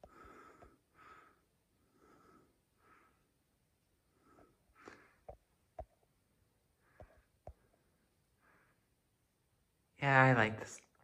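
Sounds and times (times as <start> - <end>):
wheezy breathing: 0.0 - 3.4.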